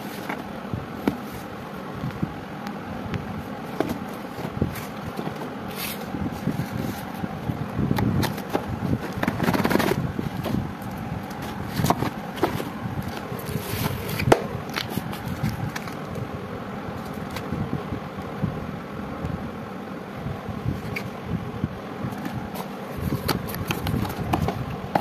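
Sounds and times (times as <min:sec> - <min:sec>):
cardboard and plastic rustling: 0:00.0 - 0:02.2, 0:03.5 - 0:16.2, 0:16.9 - 0:17.6, 0:22.0 - 0:25.0
steady background noise: 0:00.0 - 0:25.0.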